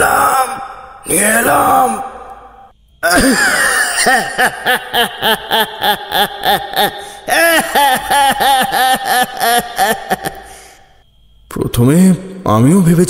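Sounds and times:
harsh cackling cartoon laugh: 0:03.0 - 0:10.7.

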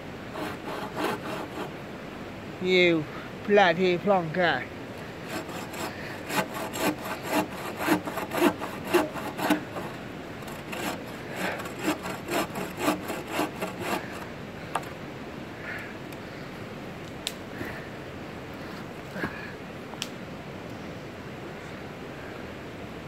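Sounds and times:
bow saw cutting wood: 0:00.3 - 0:01.8, 0:05.2 - 0:15.0.

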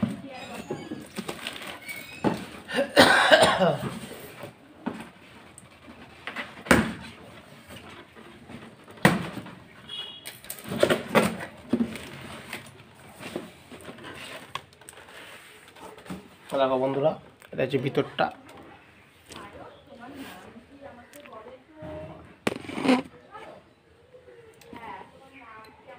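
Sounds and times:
plastic wrap crinkling and tearing: 0:01.0 - 0:02.2.

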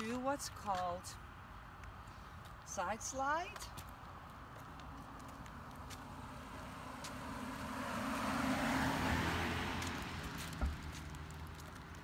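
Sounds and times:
car passing: 0:04.2 - 0:12.0.

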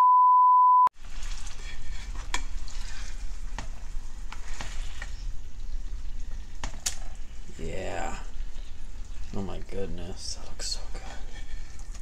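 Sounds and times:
spatula scraping a pan: 0:01.0 - 0:06.0, 0:10.8 - 0:12.0
fish sizzling in a frying pan: 0:01.0 - 0:10.0.

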